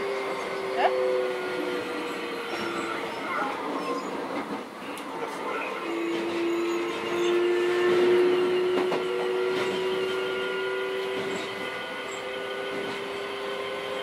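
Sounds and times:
train motor whine: 0.0 - 14.0
wheels rumbling on track: 0.0 - 14.0
rail joint clacks: 6.0 - 13.2.

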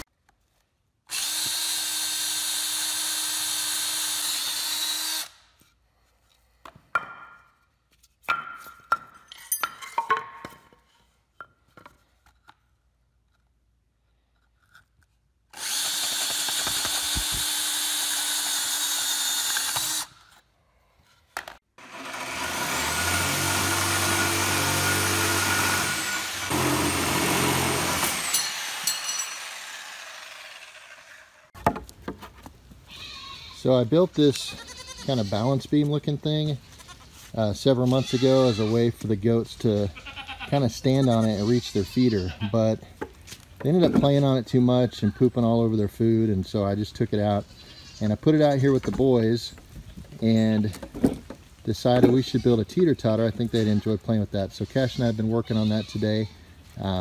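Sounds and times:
cordless drill boring through wood: 1.1 - 5.4, 15.5 - 20.2, 21.8 - 31.5
wood knocks and tool handling: 6.6 - 12.6, 31.6 - 32.6, 48.8 - 52.2.

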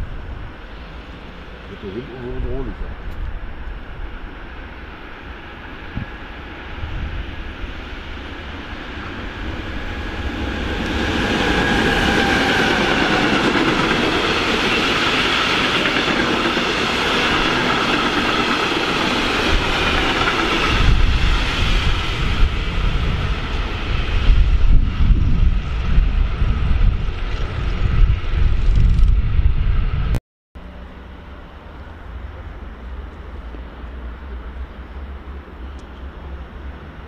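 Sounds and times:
freight train wheels clattering: 10.3 - 22.0
heavy low rumble: 20.7 - 37.0.

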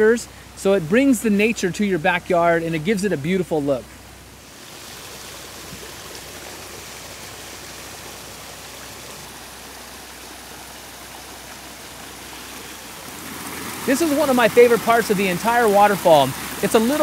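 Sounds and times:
water splashing over stones: 4.4 - 17.0.

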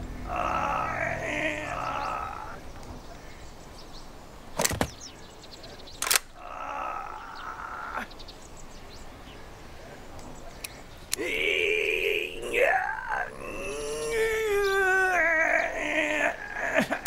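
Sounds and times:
man groaning: 0.2 - 2.6, 6.4 - 8.1, 11.2 - 17.0
rifle bolt clicks: 6.0 - 6.4.

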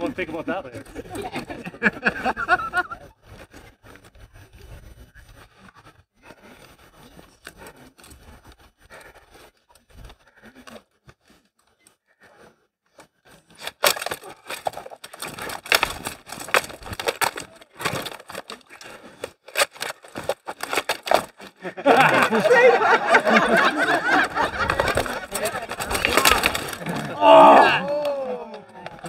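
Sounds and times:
rattan weapons clashing: 13.6 - 22.4, 23.0 - 29.0.

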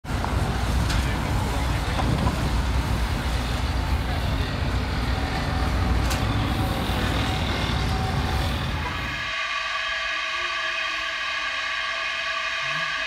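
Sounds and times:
bus engine rumbling: 0.0 - 9.2
street traffic noise: 0.0 - 9.2.

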